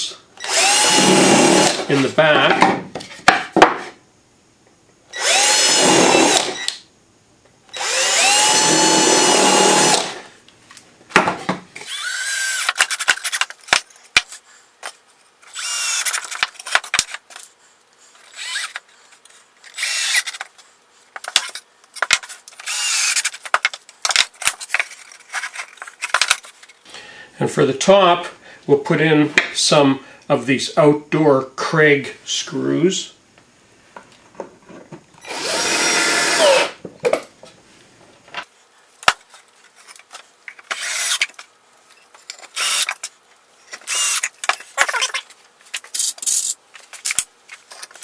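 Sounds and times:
cordless drill running: 0.4 - 1.8, 5.2 - 6.6, 7.7 - 10.2, 11.8 - 12.8, 15.5 - 16.2, 18.3 - 18.8, 19.8 - 20.3, 22.6 - 23.3, 35.2 - 36.8, 40.7 - 41.2, 42.6 - 43.0, 43.9 - 44.3.

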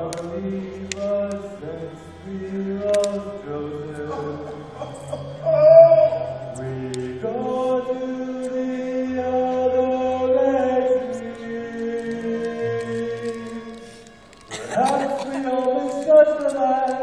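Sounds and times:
cast singing held chords: 0.0 - 17.0
low musical accompaniment: 0.0 - 17.0.

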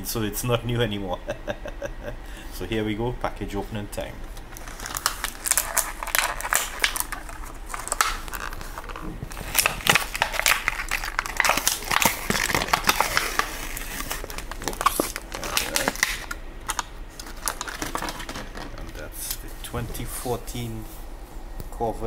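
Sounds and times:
plastic blister pack crinkling: 4.5 - 19.0.

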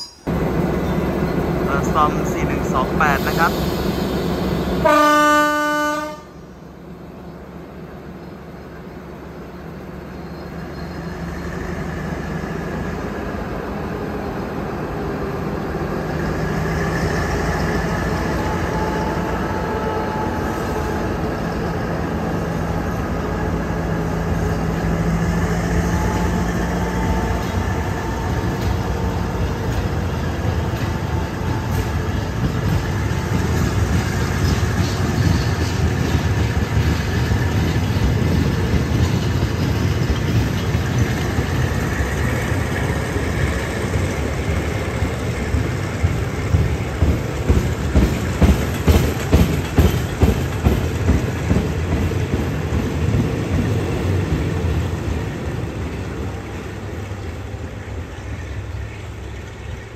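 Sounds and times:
diesel locomotive engine drone: 0.0 - 59.9.

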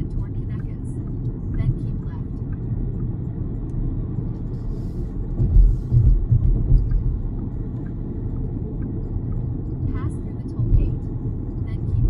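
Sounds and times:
tyres rumbling on road: 0.0 - 12.0
low thumps: 5.3 - 7.6.

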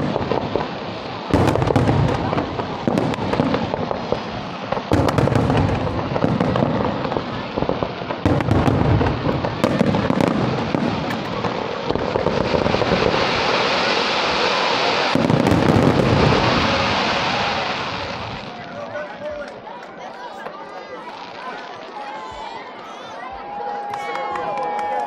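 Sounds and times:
firework shells bursting with bangs: 0.0 - 18.4
dense firework crackle: 0.0 - 22.5.

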